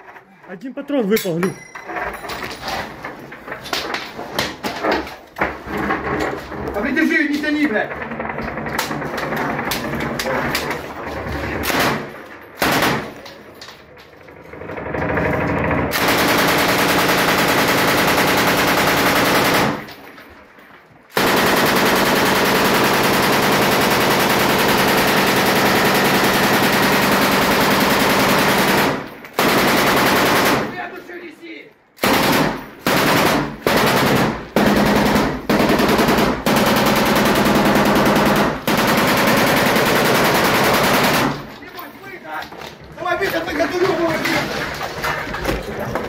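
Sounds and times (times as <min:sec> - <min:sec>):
machine gun firing bursts: 0:11.6 - 0:13.2, 0:15.2 - 0:19.9, 0:21.1 - 0:30.8, 0:32.0 - 0:41.5.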